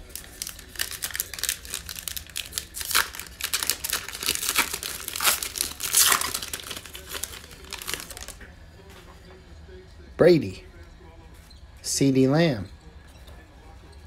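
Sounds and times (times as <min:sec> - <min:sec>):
foil wrapper tearing and crinkling: 0:00.0 - 0:08.4.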